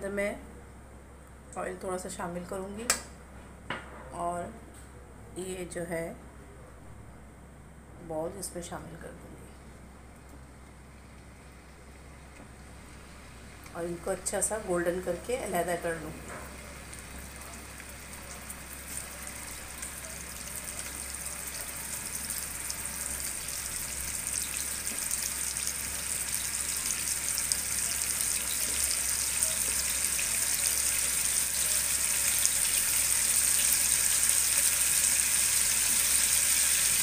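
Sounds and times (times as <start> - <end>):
meatballs sizzling in oil: 11.5 - 37.0.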